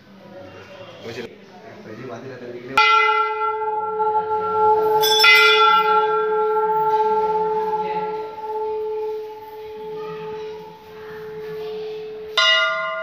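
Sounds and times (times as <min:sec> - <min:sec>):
temple bell ringing: 0:02.8 - 0:13.0.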